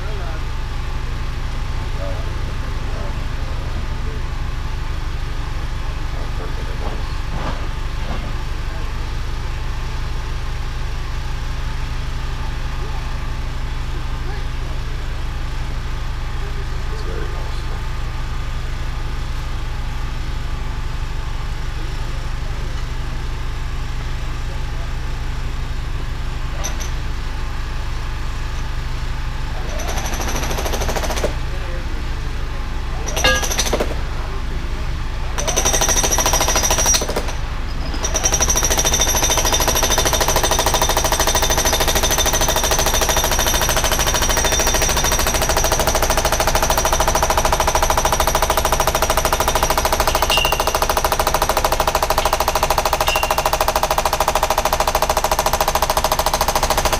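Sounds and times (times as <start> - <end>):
diesel engine running: 0.0 - 56.9.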